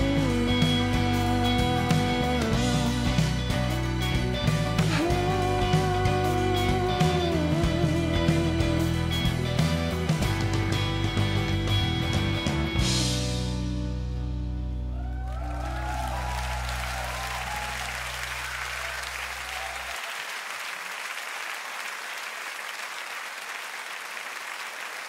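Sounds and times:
audience applauding and cheering: 14.8 - 25.0.

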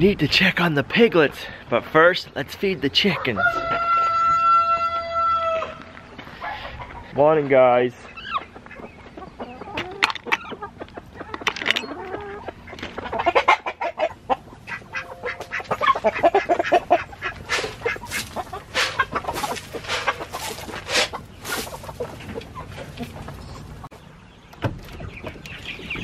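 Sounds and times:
hens clucking and calling: 3.0 - 7.4, 8.0 - 23.9.

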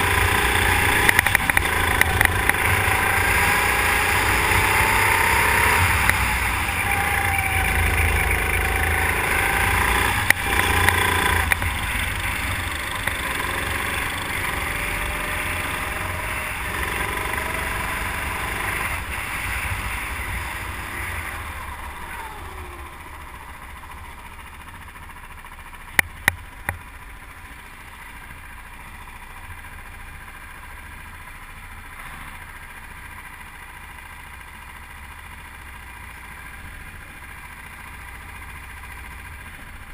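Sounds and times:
go-kart engine running: 0.0 - 39.9
sharp clicks: 1.0 - 2.7.

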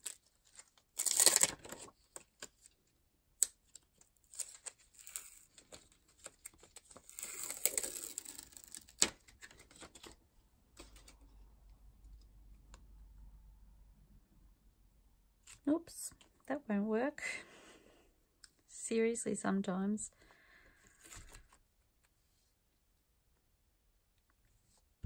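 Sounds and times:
plastic packaging crinkling: 0.0 - 2.8, 3.7 - 10.2.

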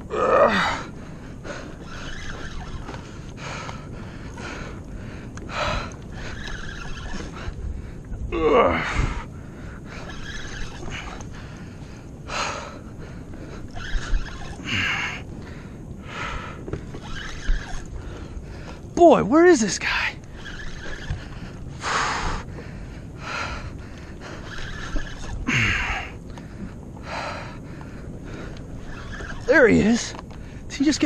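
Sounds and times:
man gasping and grunting: 0.1 - 0.9.

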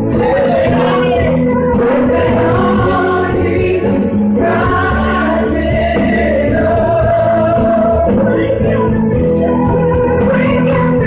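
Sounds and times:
band with steady bass: 0.0 - 11.0
choir singing long held notes: 0.2 - 8.7.

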